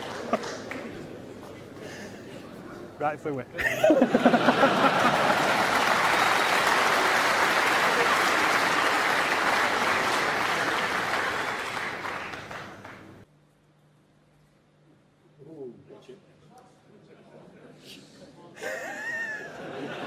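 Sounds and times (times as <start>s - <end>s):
audience applauding: 0.0s - 1.6s, 4.0s - 13.2s.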